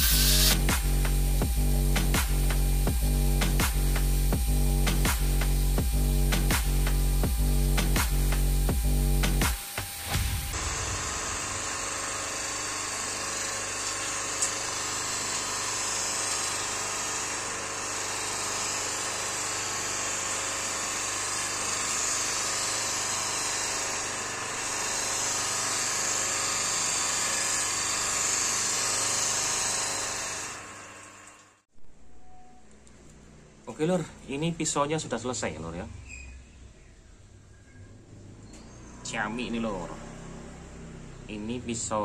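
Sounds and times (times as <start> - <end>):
electric motor hum: 0.0 - 31.6.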